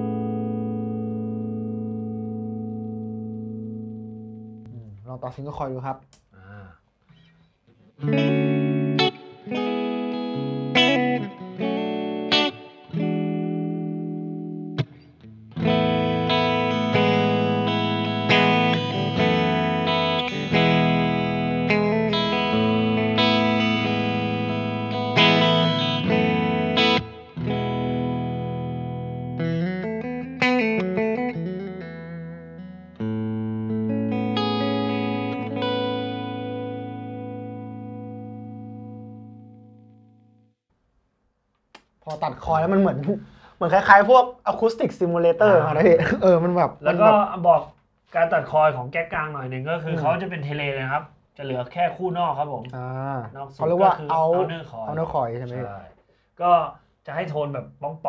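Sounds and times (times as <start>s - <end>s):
clean electric guitar chords: 0.0s - 4.7s, 8.0s - 40.5s.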